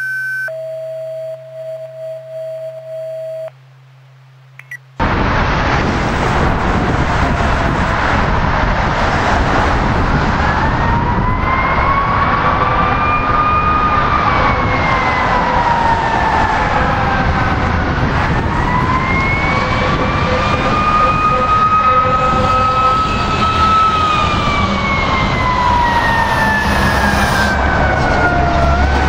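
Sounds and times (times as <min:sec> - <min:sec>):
road traffic noise: 0:04.5 - 0:29.0
bus passing: 0:05.0 - 0:29.0
distant fire siren wailing: 0:09.2 - 0:29.0.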